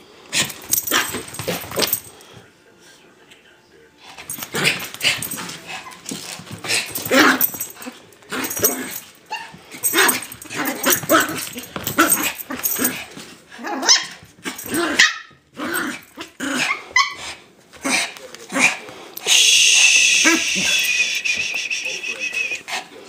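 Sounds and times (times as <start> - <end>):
small dogs barking: 13.8 - 15.4.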